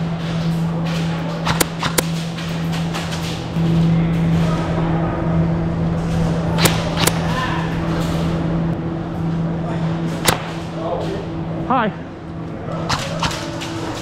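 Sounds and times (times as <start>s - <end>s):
steady low hum: 0.0s - 14.0s
airsoft gun shots: 1.5s - 2.1s, 6.6s - 7.2s, 10.2s - 10.6s.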